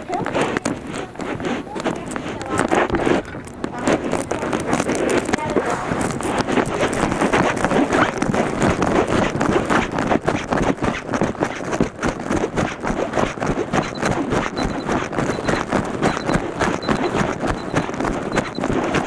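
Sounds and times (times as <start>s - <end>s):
camera jolting and rubbing: 0.0s - 19.0s
running footsteps on pavement: 0.0s - 19.0s
faint high-pitched beeps: 13.8s - 19.0s.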